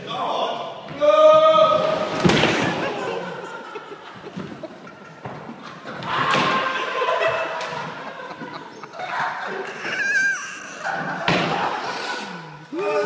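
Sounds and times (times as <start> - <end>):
echoing knocks and thuds: 10.9 - 11.7.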